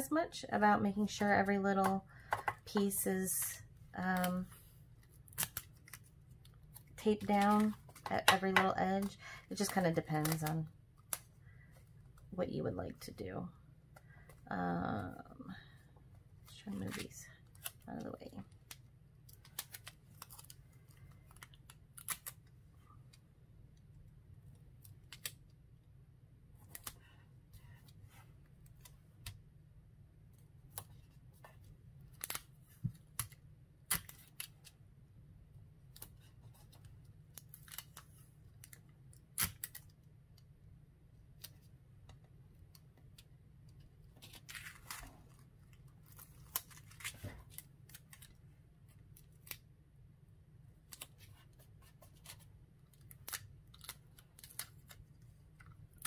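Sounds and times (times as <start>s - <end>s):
low steady hum: 0.0s - 56.0s
hands handling tape and plastic: 1.3s - 12.3s, 30.4s - 34.8s, 41.2s - 49.7s, 50.8s - 56.0s.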